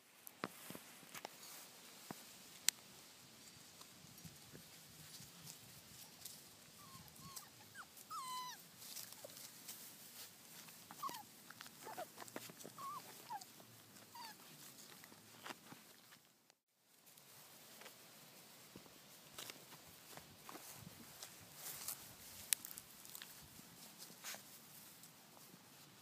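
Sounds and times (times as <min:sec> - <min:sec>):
clicks and rustles in grass: 0:00.0 - 0:26.0
puppies whimpering: 0:06.8 - 0:08.6, 0:11.0 - 0:14.4.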